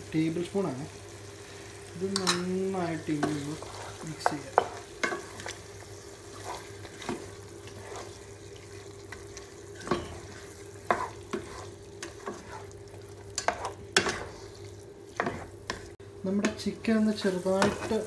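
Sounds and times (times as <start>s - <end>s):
soft frying sizzle: 0.0s - 18.0s
wooden spatula scraping a pan: 3.2s - 16.0s.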